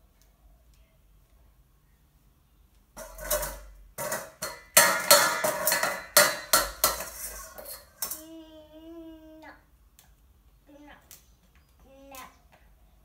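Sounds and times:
dishes and cutlery clattering: 3.0 - 8.3.

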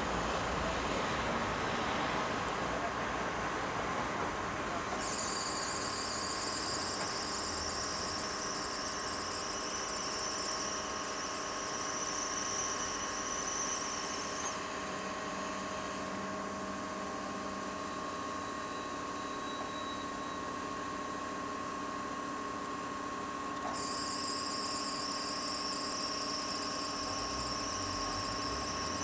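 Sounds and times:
shrill high whistling hiss: 5.0 - 15.6, 23.8 - 29.0.

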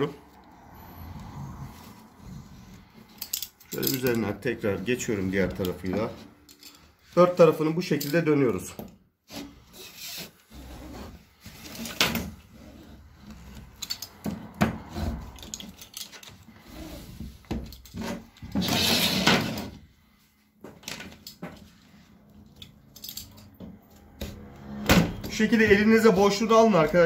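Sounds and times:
roller rubbing and scraping: 0.8 - 3.2, 9.3 - 13.8, 14.8 - 19.8.

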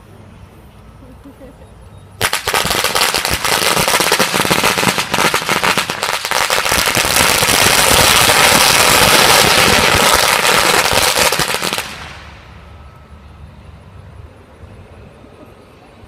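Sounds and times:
firecrackers popping: 2.2 - 12.4.

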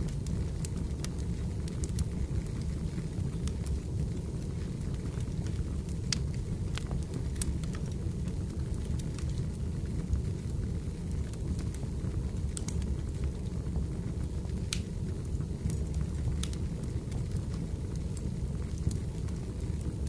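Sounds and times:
fire crackling and popping: 0.0 - 20.0
low rumble of flames: 0.0 - 20.0.

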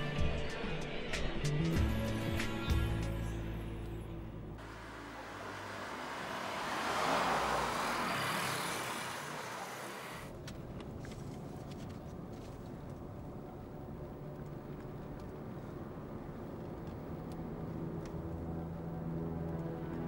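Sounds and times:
steady traffic noise: 3.3 - 20.0
vehicle driving past: 4.6 - 10.3.

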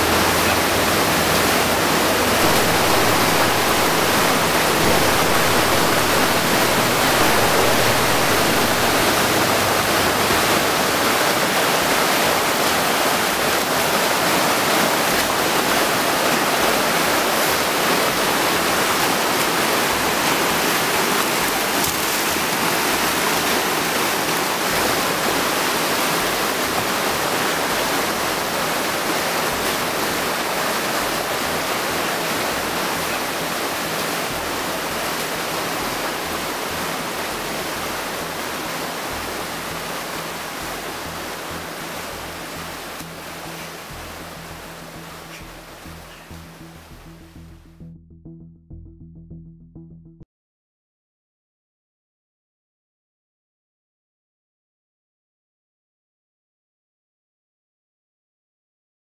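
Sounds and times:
stream water cascading over rocks: 0.0 - 47.0.

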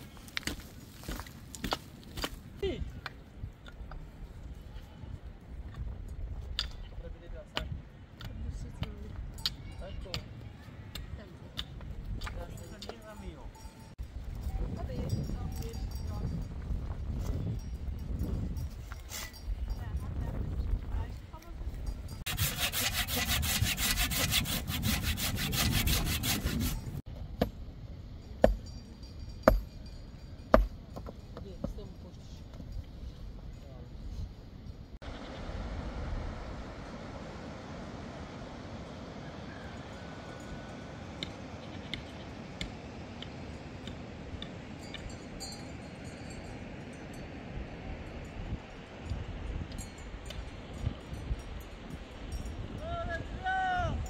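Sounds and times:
hand saw cutting wood: 22.3 - 27.0.

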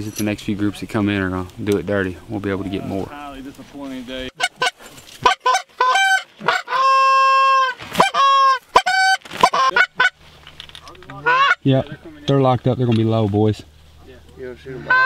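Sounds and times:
goose call honks and clucks: 4.3 - 10.2, 11.2 - 11.8, 14.8 - 15.0.

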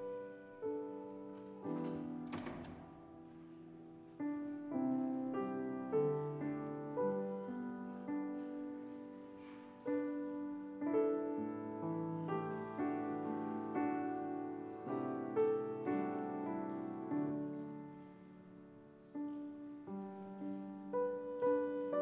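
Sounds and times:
grand piano slow chords: 0.0 - 22.0.

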